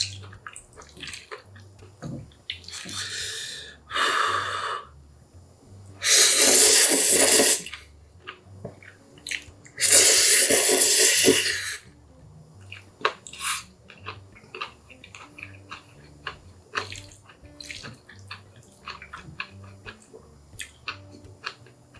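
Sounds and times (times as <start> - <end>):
wet chewing: 0.0 - 3.1, 12.6 - 21.9
man slurping noodles: 6.0 - 7.8, 9.8 - 11.8.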